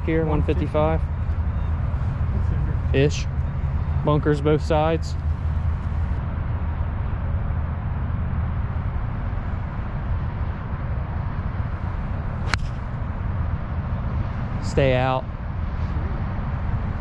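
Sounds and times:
golf club striking ball: 12.4s - 13.0s.

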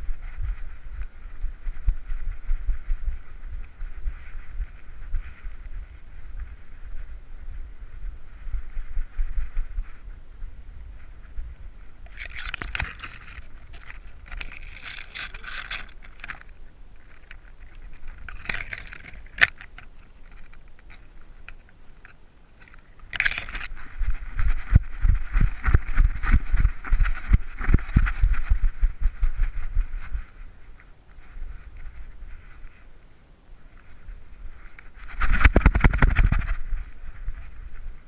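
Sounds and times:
vegetation scraping: 10.9s - 33.0s, 33.6s - 38.0s
harness jingling and rattling: 12.1s - 20.5s.

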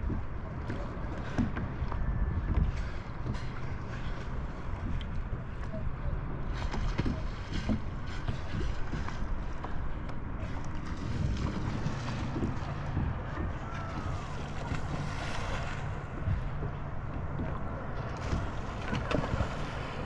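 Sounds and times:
water lapping and splashing: 0.0s - 20.0s
wind rumbling on microphone: 0.0s - 20.0s.

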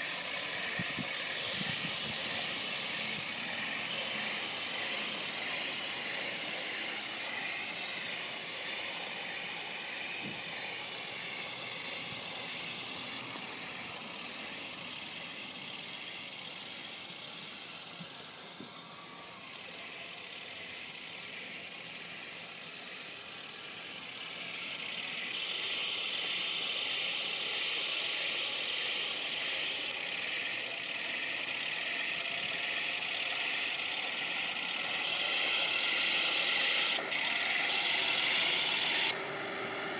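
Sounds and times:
toy tank motor whine: 0.0s - 39.9s.

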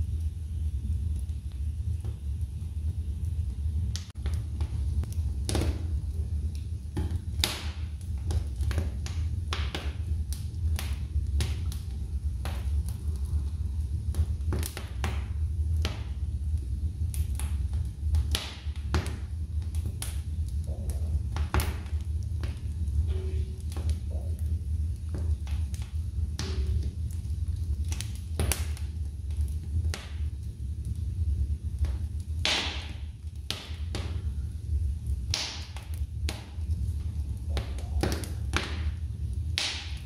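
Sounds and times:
logs crackling and popping in fire: 0.0s - 40.0s
low fire rumble: 0.0s - 40.0s.

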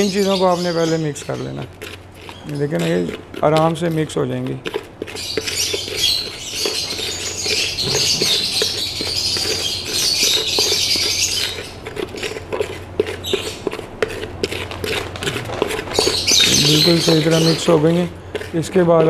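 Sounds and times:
birds chattering: 0.0s - 19.0s
plastic spoon scraping plastic bowl: 0.0s - 19.0s.

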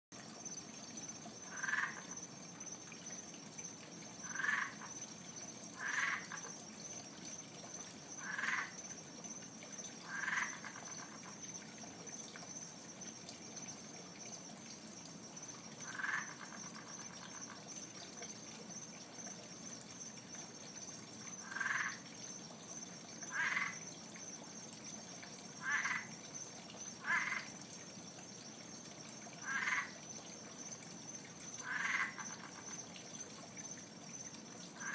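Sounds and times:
frog calling: 1.4s - 2.3s, 4.2s - 5.0s, 5.7s - 6.6s, 8.1s - 9.0s, 10.0s - 11.4s, 15.5s - 17.7s, 21.3s - 22.1s, 23.2s - 23.9s, 25.6s - 26.2s, 27.0s - 27.6s, 29.3s - 30.0s, 31.5s - 32.9s.

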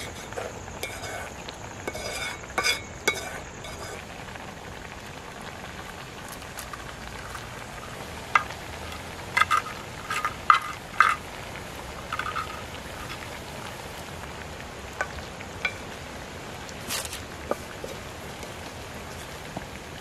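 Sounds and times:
curry simmering hiss: 0.0s - 20.0s
wooden spoon knocking on pots: 8.3s - 11.2s, 12.1s - 12.6s.

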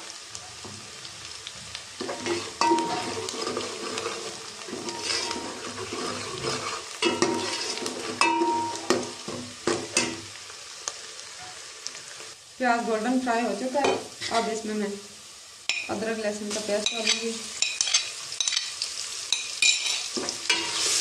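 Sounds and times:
onions sizzling in oil: 0.0s - 21.0s
ladle scraping and knocking pot: 2.0s - 10.2s.

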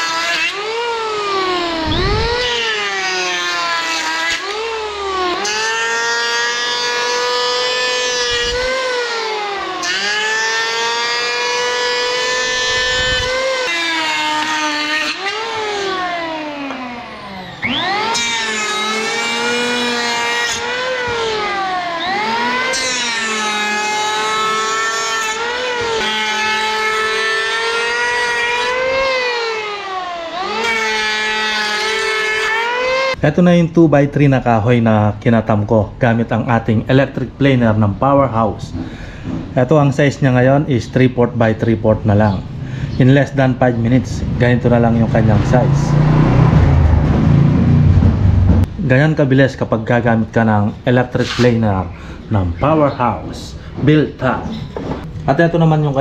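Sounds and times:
electric hand planer whining: 0.0s - 33.2s
planer blades cutting wood: 0.0s - 33.2s, 42.6s - 48.8s, 51.2s - 55.2s.

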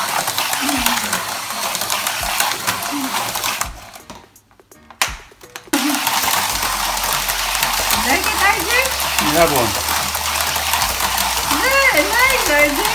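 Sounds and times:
toy car electric motor whirring: 0.0s - 4.2s, 5.7s - 12.9s.

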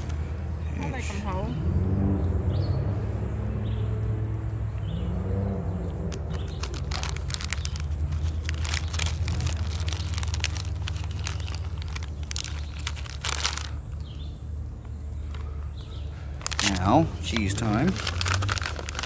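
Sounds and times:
distant airboat engines droning: 0.0s - 19.0s
plastic package crinkling: 6.2s - 14.0s, 16.4s - 19.0s.

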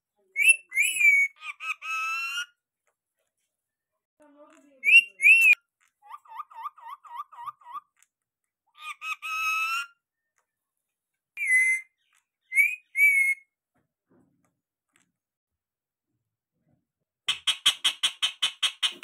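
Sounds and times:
parakeet screeching and chattering: 0.4s - 2.6s, 4.7s - 8.0s, 8.7s - 10.0s, 11.4s - 13.4s, 17.3s - 19.0s.

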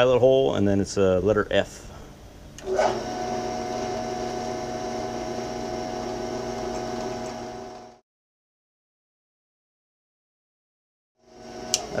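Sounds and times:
drill boring into iron: 2.6s - 8.0s, 11.3s - 12.0s
drill press humming: 2.6s - 8.0s, 11.2s - 12.0s.

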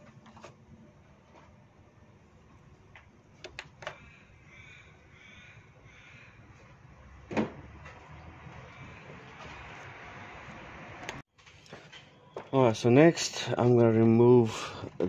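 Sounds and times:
bird calling: 3.8s - 6.6s.

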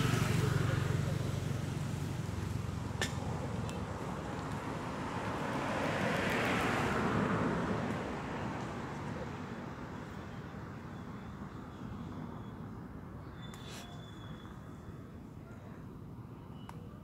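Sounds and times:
vehicle passing: 0.0s - 10.2s.

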